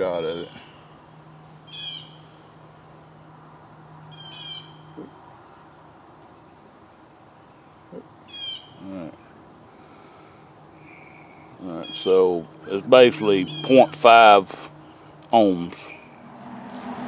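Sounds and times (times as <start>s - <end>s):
high-pitched insect drone: 0.0s - 17.0s
short bird calls: 9.8s - 15.2s.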